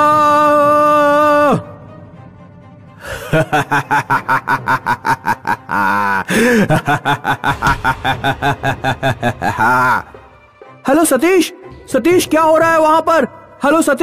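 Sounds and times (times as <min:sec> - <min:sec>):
witch cackling laughter: 0:03.0 - 0:10.1.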